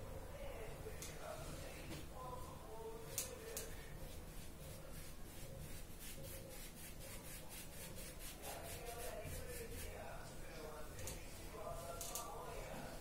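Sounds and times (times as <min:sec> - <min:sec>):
hand rubbing fabric: 0:04.1 - 0:10.0.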